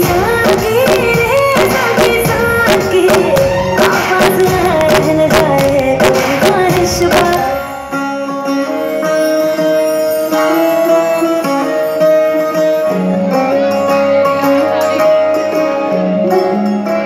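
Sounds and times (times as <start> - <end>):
dance music with held notes: 0.0 - 8.0.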